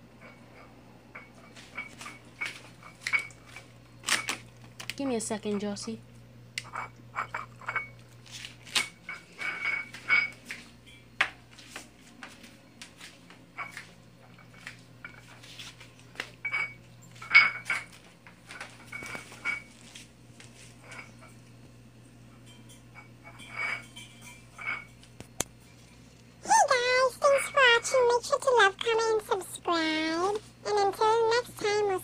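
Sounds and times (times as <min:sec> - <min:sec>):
clinks against food dish: 0:00.2 - 0:04.4, 0:06.6 - 0:08.1, 0:08.8 - 0:11.4, 0:13.5 - 0:15.4, 0:16.2 - 0:19.9, 0:22.3 - 0:25.3.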